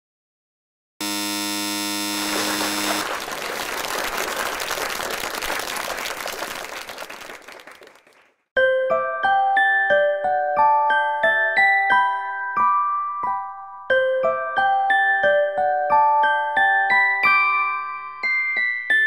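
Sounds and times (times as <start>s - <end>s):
buzzy electronic tone: 1.0s - 3.0s.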